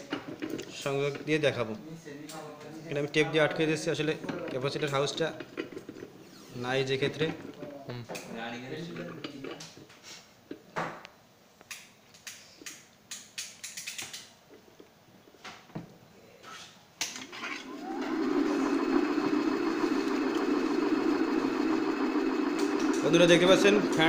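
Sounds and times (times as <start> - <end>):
fan motor whining and humming: 17.6 - 24.0.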